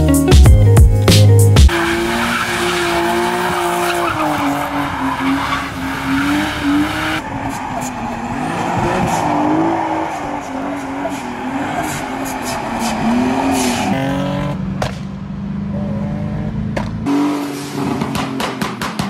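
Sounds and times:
tyres squealing: 0:01.7 - 0:14.6
car engines revving: 0:01.7 - 0:19.0.

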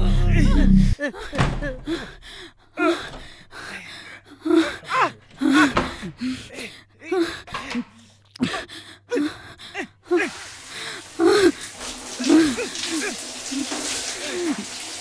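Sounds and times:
woman sobbing: 0:00.0 - 0:03.2, 0:03.8 - 0:07.7, 0:11.2 - 0:11.6, 0:12.2 - 0:14.6
shower running: 0:10.1 - 0:15.0.

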